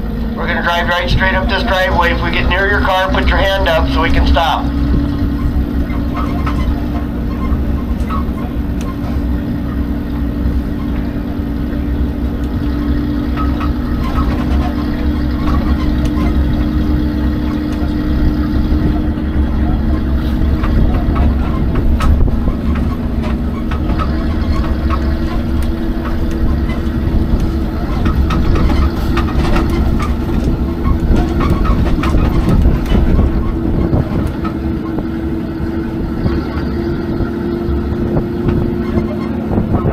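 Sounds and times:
tram engine drone: 0.0s - 39.9s
light rattles and clicks: 0.4s - 39.9s.

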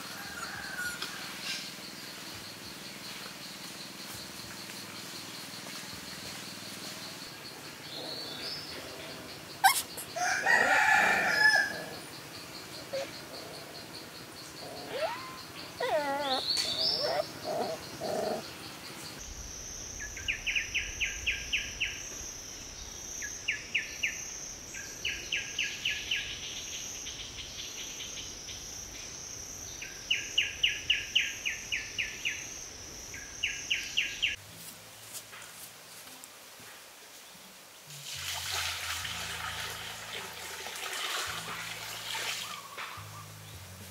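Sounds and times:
insects buzzing: 0.0s - 38.0s
bird chirping: 12.5s - 19.2s.

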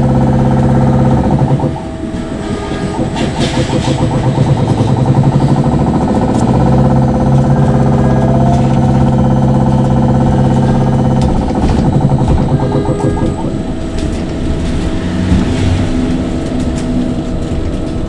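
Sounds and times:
electric motor hum and whine: 0.0s - 18.0s
road noise: 12.2s - 18.0s.

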